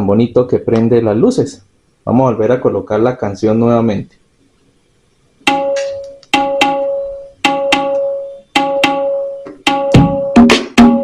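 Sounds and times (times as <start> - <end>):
pitched percussion music on speaker: 5.5 - 11.0.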